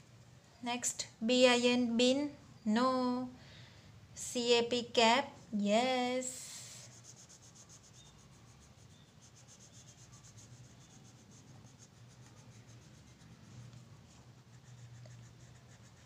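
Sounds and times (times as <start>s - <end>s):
colouring strokes scratching on paper: 5.4s - 16.0s.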